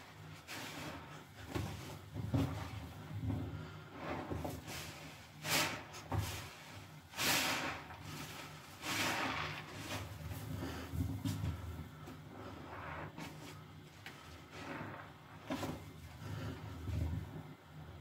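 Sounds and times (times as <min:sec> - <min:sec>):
sponge squelching in soapy foam: 0:00.0 - 0:17.4.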